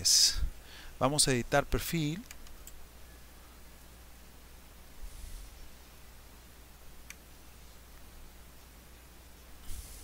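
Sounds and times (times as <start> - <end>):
faint low hum: 0.0 - 10.0
computer mouse click: 2.2 - 2.8.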